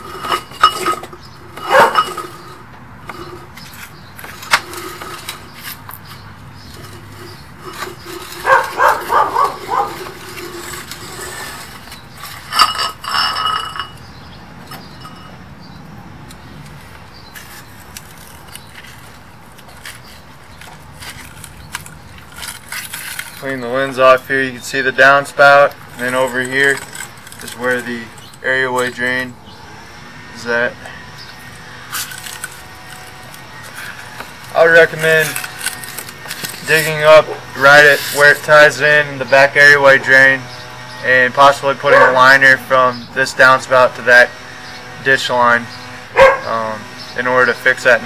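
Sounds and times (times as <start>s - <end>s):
metal cable clinking in a pipe: 7.6s - 14.0s.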